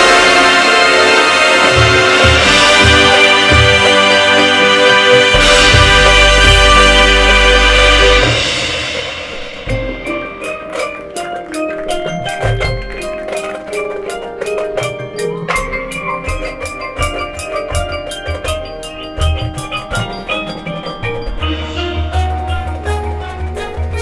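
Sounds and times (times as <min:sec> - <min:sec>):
mallet percussion strikes: 0:00.0 - 0:24.0
marching band playing: 0:00.0 - 0:24.0
heavy low drum hits: 0:01.7 - 0:04.0, 0:05.3 - 0:10.2.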